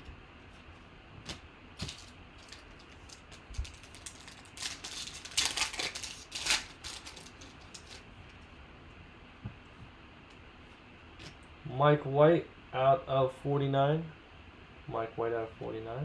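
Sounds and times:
foil pack crinkling: 0:01.2 - 0:08.1.

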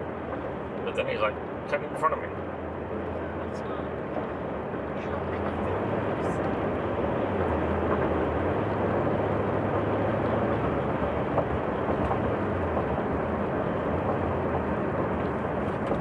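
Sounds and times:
low engine drone: 0:00.0 - 0:16.0
road and tyre noise: 0:00.0 - 0:16.0.

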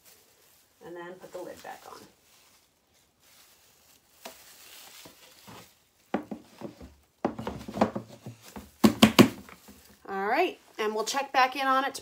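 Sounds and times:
plastic lid rustle: 0:01.5 - 0:10.0
plastic lid clattering knocks: 0:06.2 - 0:09.6.

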